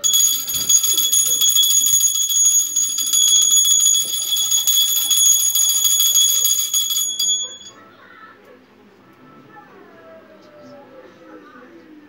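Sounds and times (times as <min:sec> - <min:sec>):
small brass hand bell ringing: 0:00.0 - 0:07.7.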